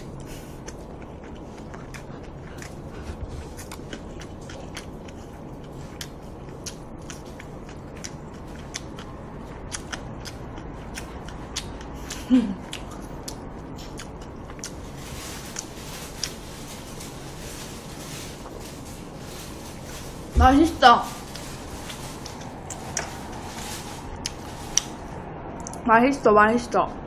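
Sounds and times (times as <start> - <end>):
wet chewing clicks and smacks: 0.0 - 16.4.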